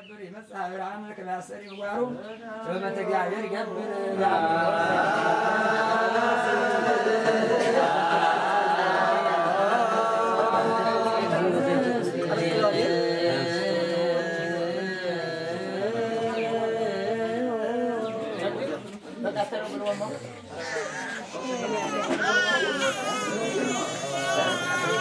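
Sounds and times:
voices chanting together: 0:01.7 - 0:19.4.

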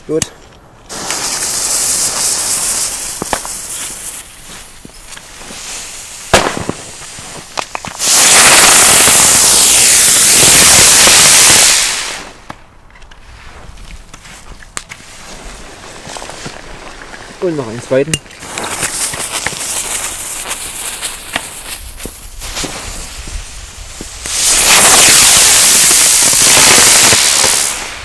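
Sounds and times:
fuse hissing: 0:00.9 - 0:12.4, 0:18.4 - 0:28.0
rushing hiss of burning charge: 0:00.9 - 0:12.5, 0:16.6 - 0:28.0.

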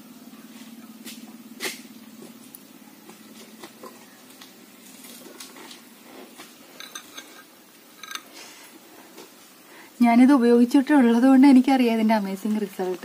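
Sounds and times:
spoon clinking in glass bowl: 0:06.8 - 0:08.3.

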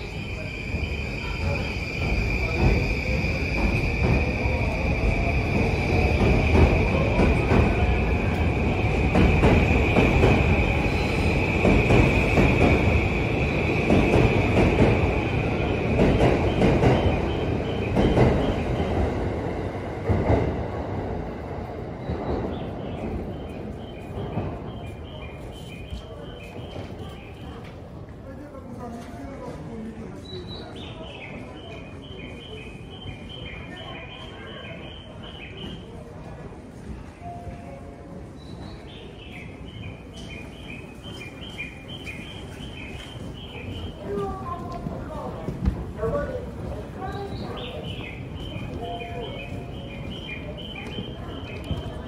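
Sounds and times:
commuter train rumbling past: 0:00.0 - 0:52.0
electronic bird-chirp guide tone: 0:48.0 - 0:52.0.

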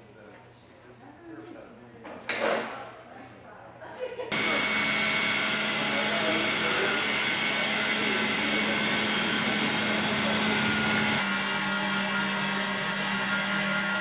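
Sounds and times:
machine whir and hum: 0:04.3 - 0:14.0.

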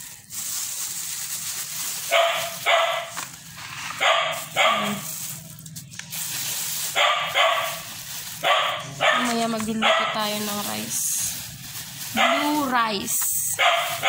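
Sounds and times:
dog barking: 0:02.0 - 0:03.2, 0:04.0 - 0:05.1, 0:06.9 - 0:10.3, 0:12.1 - 0:12.6, 0:13.6 - 0:14.0.

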